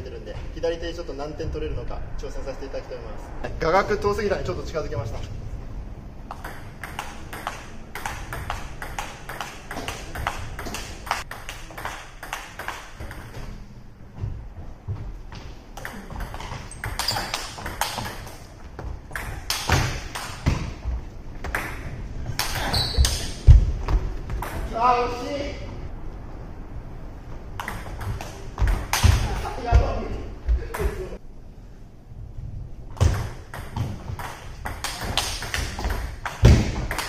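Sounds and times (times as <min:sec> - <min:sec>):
ping pong ball clicks: 0:06.3 - 0:13.3.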